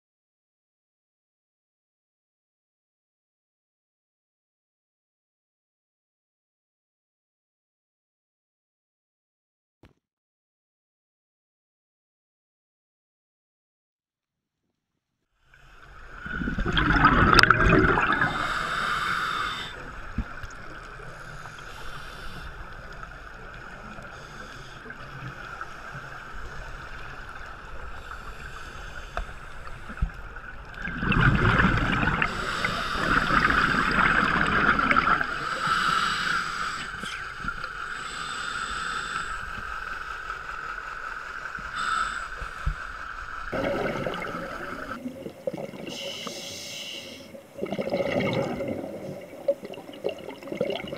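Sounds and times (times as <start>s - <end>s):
scuba exhale bubbles gurgling: 15.8s - 27.9s, 29.7s - 38.0s, 41.4s - 50.9s
steady hiss: 18.2s - 30.5s, 32.3s - 34.4s, 35.2s - 45.0s, 45.8s - 47.6s.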